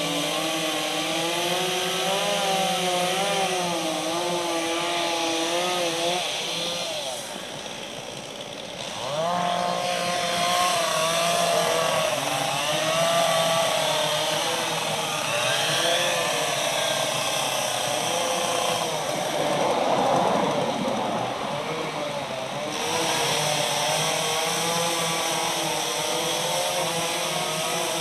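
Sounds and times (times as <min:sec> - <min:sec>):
chainsaw cutting wood: 0:00.0 - 0:28.0.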